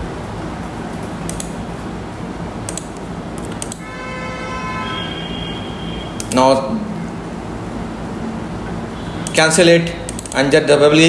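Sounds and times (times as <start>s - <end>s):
background hiss and hum: 0.0s - 11.0s
computer mouse clicks: 1.3s - 1.6s, 2.7s - 3.8s, 10.1s - 10.5s
steady electronic tone: 3.7s - 9.4s.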